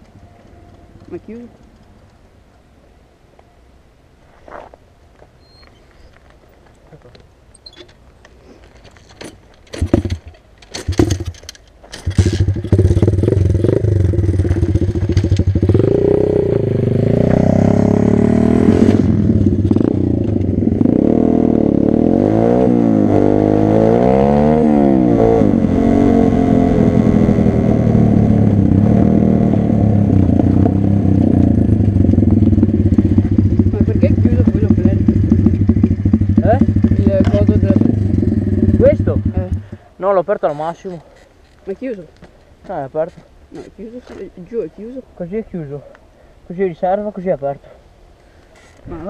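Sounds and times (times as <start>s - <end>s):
motorcycle engine revving: 9.8s - 11.4s, 12.0s - 39.9s.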